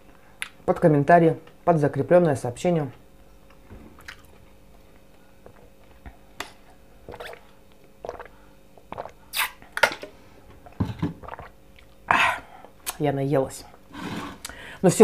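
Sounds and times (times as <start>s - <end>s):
person sipping and swallowing: 7.0s - 9.8s, 10.6s - 12.8s.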